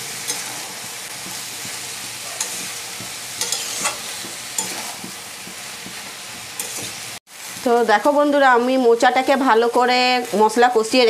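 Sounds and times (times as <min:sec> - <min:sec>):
spatula scraping a pan: 0:00.0 - 0:07.6
curry sizzling in a pan: 0:00.0 - 0:11.0.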